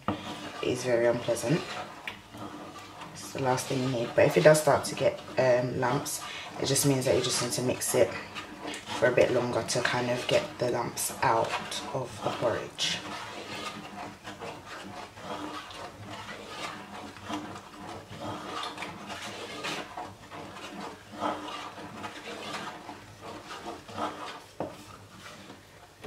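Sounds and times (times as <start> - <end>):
wooden spoon stirring porridge: 0.0 - 26.0.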